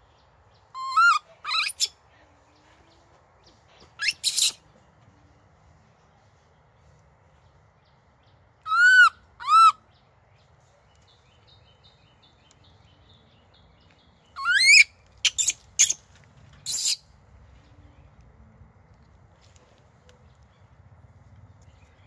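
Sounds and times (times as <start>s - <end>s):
baby macaque cooing: 0.8s - 1.9s, 4.0s - 4.6s, 8.7s - 9.8s, 14.4s - 16.0s, 16.7s - 17.0s
macaque harsh cries: 0.8s - 1.9s, 4.0s - 4.6s, 8.7s - 9.8s, 14.4s - 16.0s.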